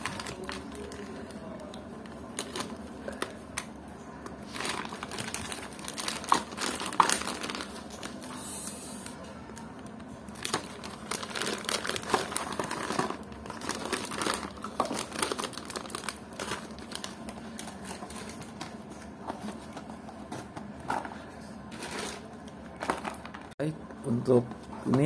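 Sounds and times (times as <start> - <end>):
plastic bag crinkling: 0.0 - 3.4, 4.4 - 8.4, 9.0 - 19.7, 21.7 - 23.6.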